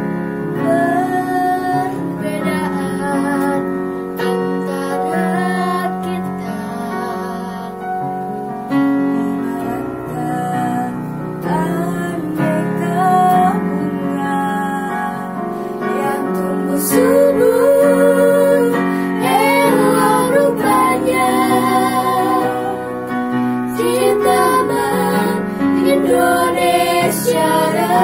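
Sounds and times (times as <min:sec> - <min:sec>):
electronic keyboard piano chords: 0:00.0 - 0:28.0
girls choir singing: 0:00.6 - 0:08.0, 0:15.9 - 0:28.0.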